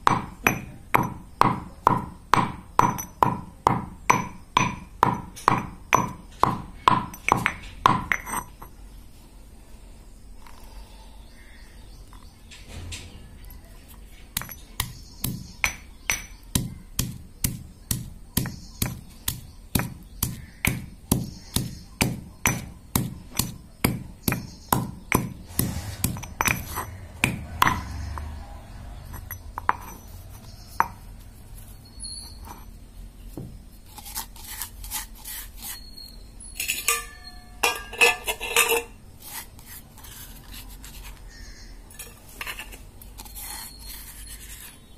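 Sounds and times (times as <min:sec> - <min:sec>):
stone pestle pounding in mortar: 0:00.0 - 0:08.4, 0:14.4 - 0:28.2
sharp clinks: 0:31.8 - 0:32.7, 0:35.8 - 0:38.9.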